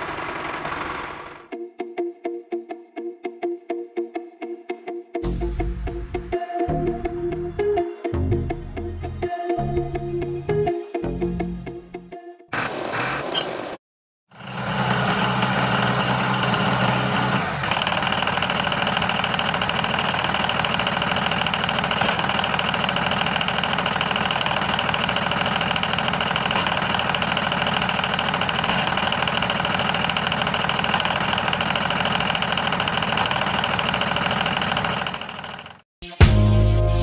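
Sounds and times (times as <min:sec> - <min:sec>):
motor running: 0:14.4 - 0:35.8.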